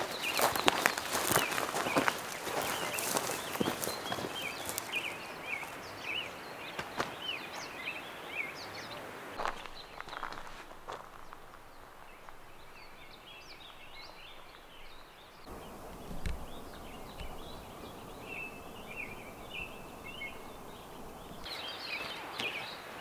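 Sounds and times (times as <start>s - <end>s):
faint outdoor hiss: 0.0s - 23.0s
songbirds chirping: 0.0s - 23.0s
soft low bump: 9.6s - 21.5s.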